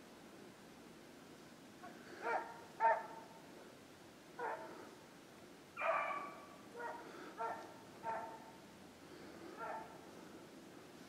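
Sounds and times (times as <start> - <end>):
hounds baying: 1.8 - 3.3, 4.4 - 4.8, 5.8 - 8.6, 9.5 - 10.0.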